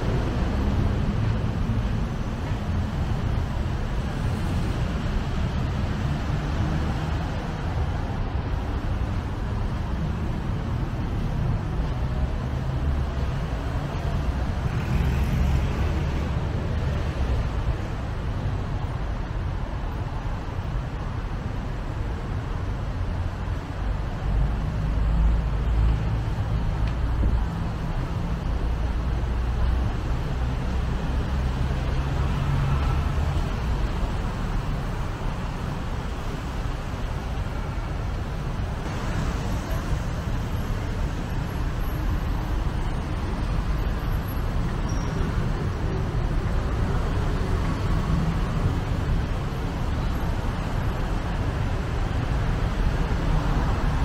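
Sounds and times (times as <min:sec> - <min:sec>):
city road traffic: 0:00.0 - 0:54.0.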